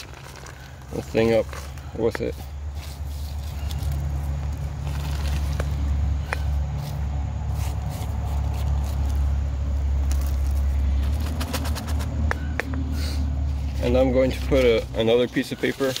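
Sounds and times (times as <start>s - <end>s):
rocks rattling into cardboard tube: 0.0s - 6.5s, 10.0s - 12.5s.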